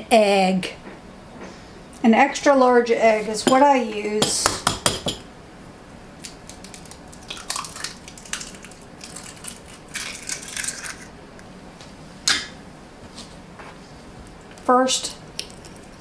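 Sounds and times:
eggshell crackling: 6.2 - 11.5, 15.3 - 16.0.

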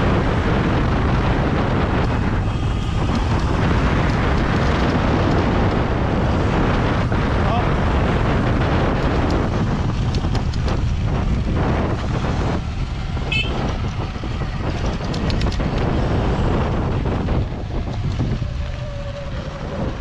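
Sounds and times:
wind noise on microphone: 0.0 - 20.0
bike clicks and knocks: 8.8 - 11.4, 13.0 - 16.0.

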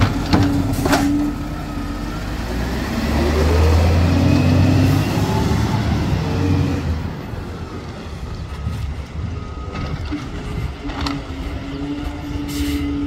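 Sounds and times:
garbage truck engine revving: 0.0 - 7.3.

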